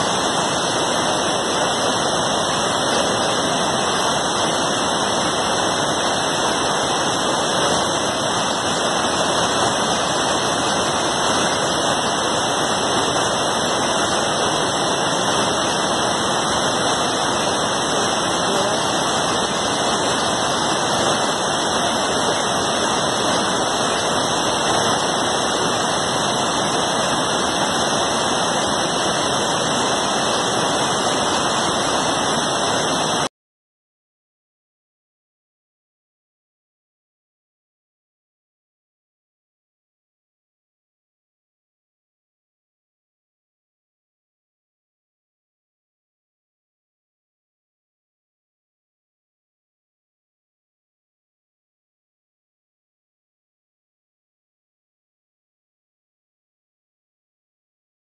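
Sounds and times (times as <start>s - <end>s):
water rushing down spillway: 0.0s - 33.3s.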